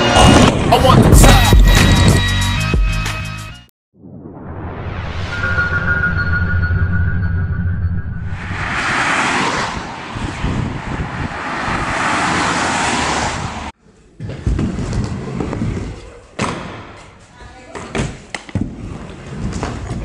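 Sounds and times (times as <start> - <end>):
cars passing on road: 8.2 - 13.8
scooter rolling on wooden ramp: 14.2 - 17.1, 17.7 - 20.0.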